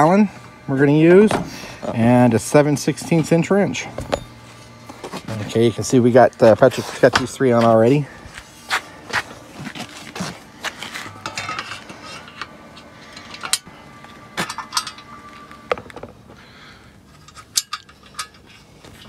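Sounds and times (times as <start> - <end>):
bolts and nuts clinking: 11.1 - 12.5, 14.4 - 15.1, 17.2 - 19.0.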